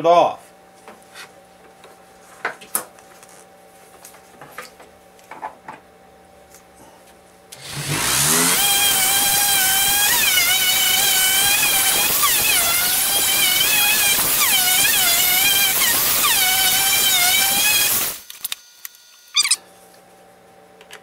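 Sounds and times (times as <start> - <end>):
electric sander whining: 7.6 - 18.2.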